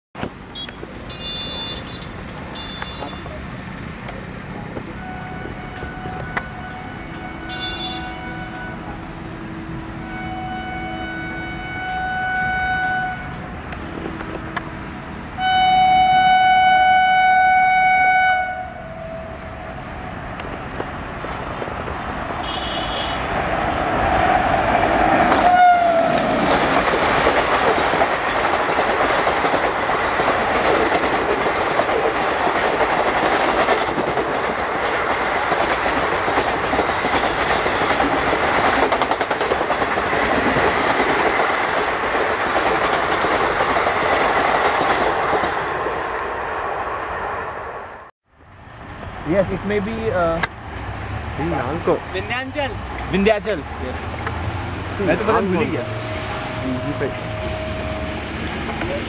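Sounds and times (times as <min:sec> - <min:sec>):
train horn blasts: 0:00.6 - 0:02.0, 0:02.6 - 0:03.3, 0:05.0 - 0:13.5, 0:15.4 - 0:19.8, 0:22.4 - 0:24.2, 0:25.3 - 0:26.3, 0:55.2 - 0:58.8
train wheels clattering on rails: 0:23.4 - 0:46.1.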